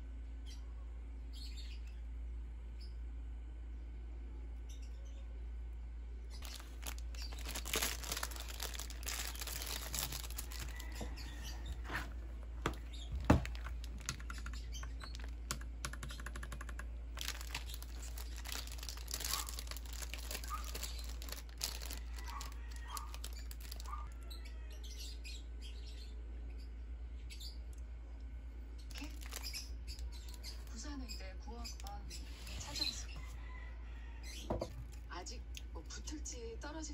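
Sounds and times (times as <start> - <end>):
plastic wrapper crinkling and tearing: 6.4 - 14.3, 15.1 - 15.5, 17.2 - 24.1, 28.9 - 30.7
mechanical keyboard clicks: 14.0 - 16.9.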